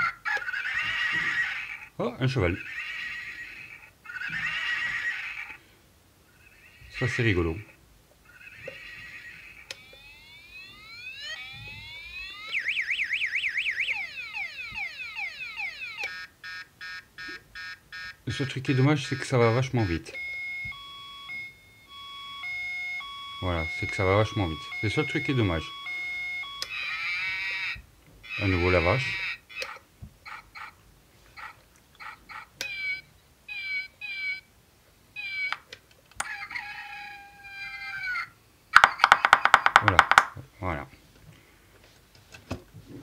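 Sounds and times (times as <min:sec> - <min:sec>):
electronic cat meow: 0:00.0 - 0:01.8, 0:02.6 - 0:05.6, 0:08.3 - 0:09.8, 0:26.6 - 0:29.8, 0:36.5 - 0:38.3
electronic siren sweeping and warbling: 0:08.3 - 0:17.0, 0:18.8 - 0:29.8
pulsed beeping: 0:20.2 - 0:26.9.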